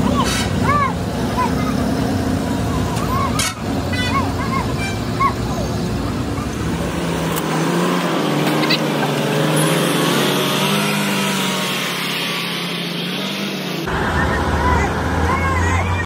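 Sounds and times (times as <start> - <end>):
people talking: 0.0 - 6.9, 13.9 - 16.0
heavy truck engine under load: 0.0 - 16.0.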